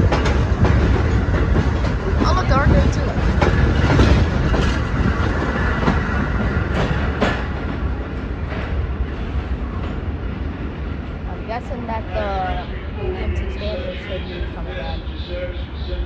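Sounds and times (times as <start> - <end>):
subway train passing: 0.0 - 16.0.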